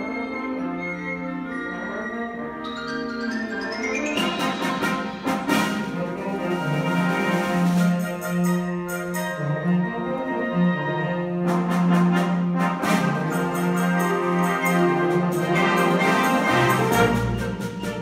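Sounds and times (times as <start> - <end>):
concert band brass and woodwind chords: 0.0 - 18.0
percussion strikes: 2.6 - 9.4, 11.5 - 18.0.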